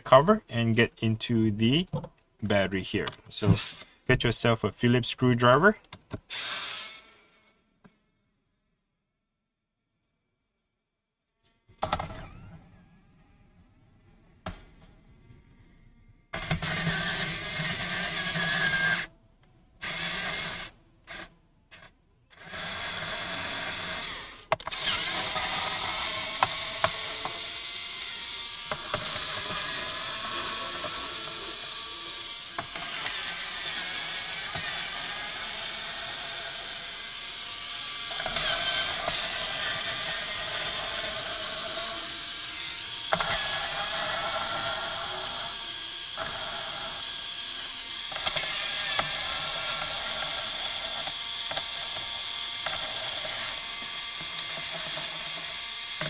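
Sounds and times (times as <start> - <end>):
electric screwdriver whirring: 6.3 - 7.5, 16.4 - 19.1, 19.8 - 56.0.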